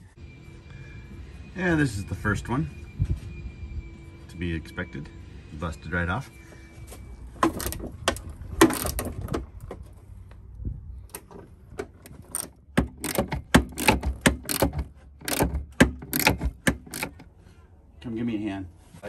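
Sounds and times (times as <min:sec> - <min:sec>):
ratchet wrench clicking: 0:12.0 - 0:17.2.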